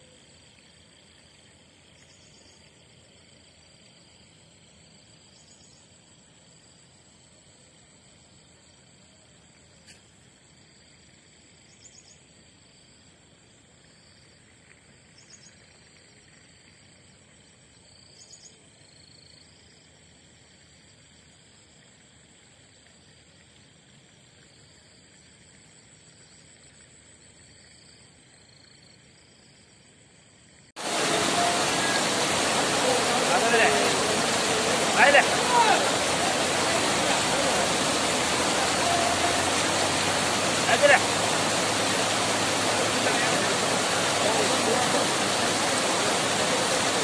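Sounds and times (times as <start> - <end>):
high insect drone: 0.0 - 47.0
floodwater rushing across road: 30.8 - 47.0.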